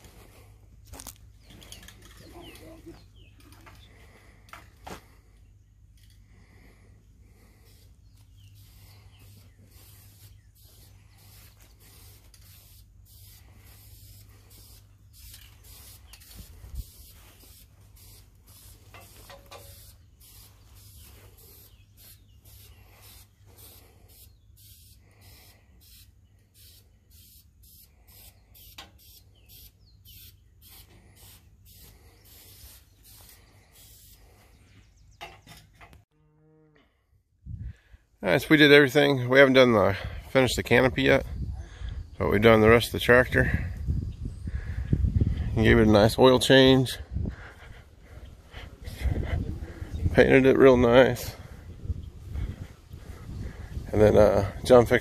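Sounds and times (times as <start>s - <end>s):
spray paint cans hissing: 7.3s - 34.6s.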